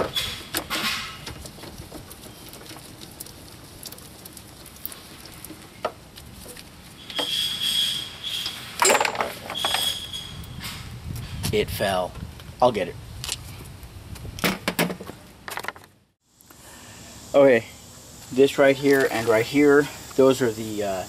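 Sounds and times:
metal bolt clattering: 8.8s - 10.0s.

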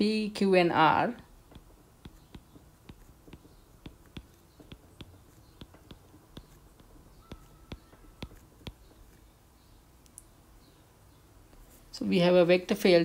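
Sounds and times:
stylus tapping on glass screen: 1.4s - 9.0s.

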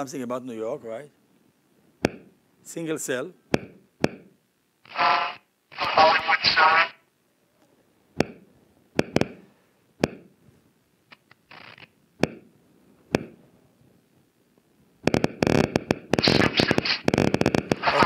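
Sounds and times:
dense rapid crackle of clicks: 15.0s - 18.0s.

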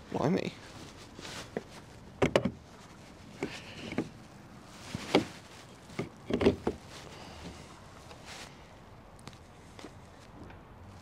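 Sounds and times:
charger connector knocks and clunks: 2.2s - 2.6s.

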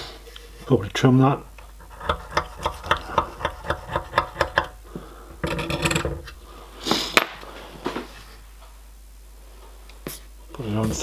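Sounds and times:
scalpel blade scraping metal: 1.8s - 4.8s.

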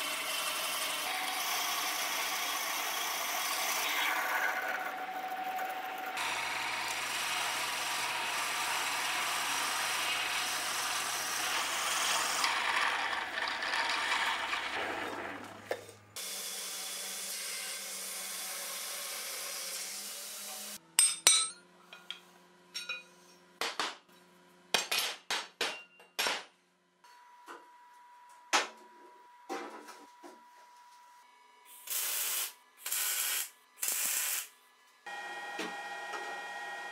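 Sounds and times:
belt grinder grinding steel: 0.0s - 15.5s
milling cutter cutting steel: 6.0s - 15.5s.

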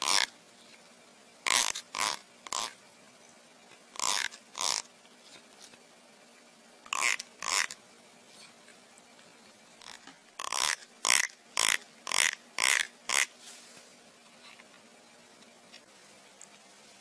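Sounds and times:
fingers rasping comb teeth: 9.8s - 13.3s.

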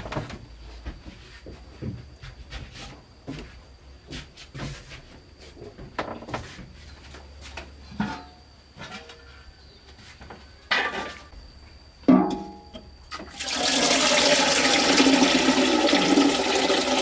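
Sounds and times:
metal pot knocking and clanking: 12.1s - 12.8s.

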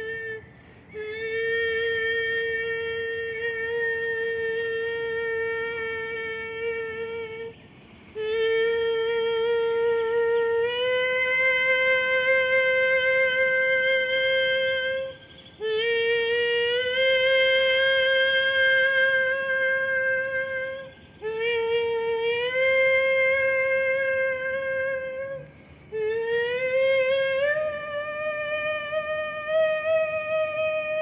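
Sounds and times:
woman singing long held notes: 0.0s - 31.0s
woman breathing: 0.4s - 1.0s, 7.6s - 8.3s, 25.4s - 26.0s.

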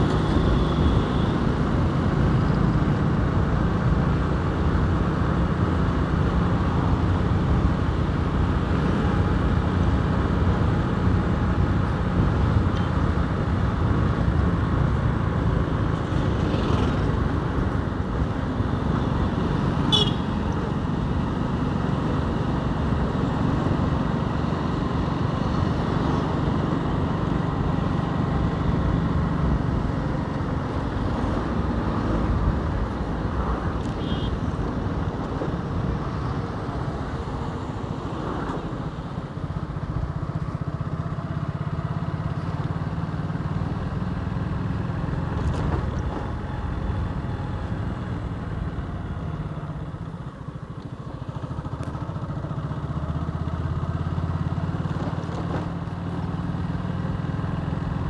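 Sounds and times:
road noise: 0.0s - 58.0s
motorcycle engine running: 18.6s - 31.8s.

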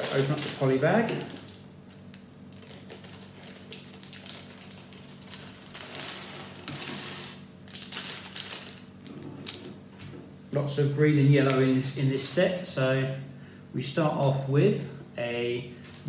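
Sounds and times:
plastic bag tearing and crinkling: 0.0s - 1.7s, 2.5s - 9.7s.

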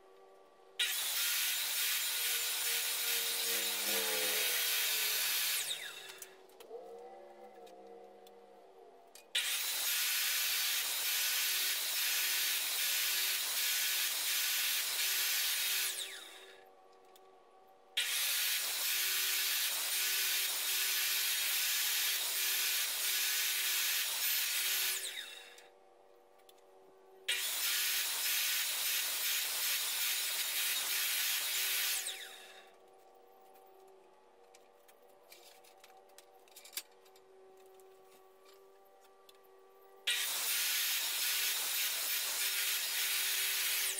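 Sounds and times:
miter saw cutting wood: 0.8s - 6.3s, 9.4s - 16.6s, 18.0s - 25.6s, 27.3s - 32.8s, 40.1s - 43.9s.

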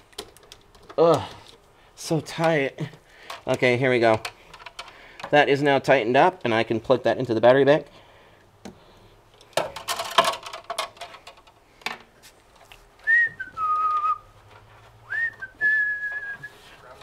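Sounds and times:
wire leads clicking and rattling: 0.0s - 7.6s, 8.4s - 17.0s
person whistling: 13.0s - 14.3s, 15.1s - 16.6s.

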